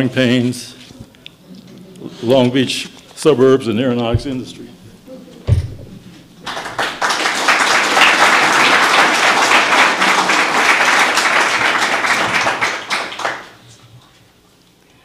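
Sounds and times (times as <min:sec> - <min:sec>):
low thump: 0:04.2 - 0:04.4, 0:05.5 - 0:06.1
audience applause: 0:06.4 - 0:13.6.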